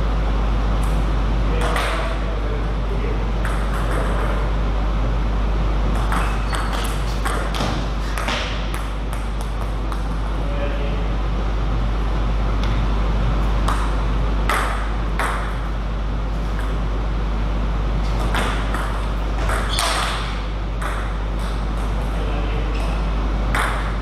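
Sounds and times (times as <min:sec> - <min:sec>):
steady low hum: 0:00.0 - 0:24.0
table tennis ball knocking: 0:03.4 - 0:04.4, 0:05.9 - 0:10.2, 0:18.2 - 0:21.9, 0:23.5 - 0:24.0.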